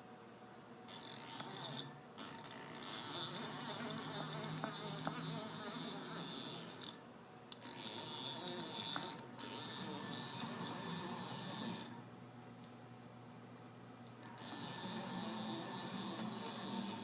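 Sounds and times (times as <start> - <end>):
servo drive whining: 14.3 - 17.0.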